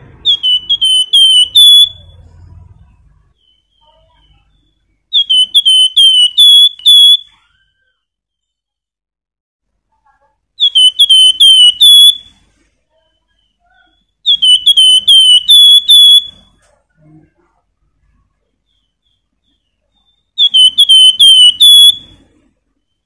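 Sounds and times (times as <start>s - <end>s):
bird whistling song: 0.1s - 2.5s, 3.3s - 8.6s, 10.6s - 16.6s, 18.6s - 23.0s.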